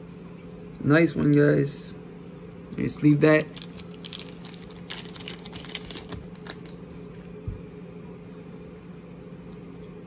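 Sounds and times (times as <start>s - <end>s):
low room hum: 0.0s - 10.0s
plastic sleeve crinkling: 3.3s - 7.1s.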